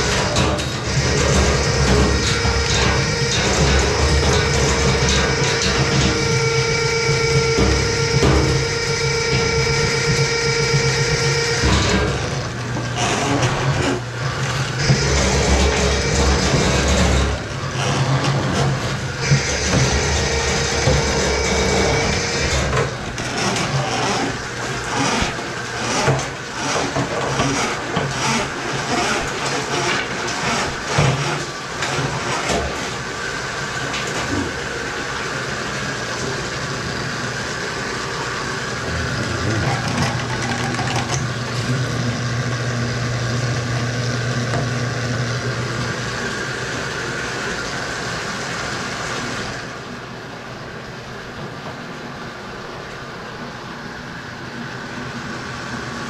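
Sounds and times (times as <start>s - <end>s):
drain cable knocking and rattling: 0.0s - 33.0s, 38.8s - 42.3s
drain machine humming: 0.0s - 56.0s.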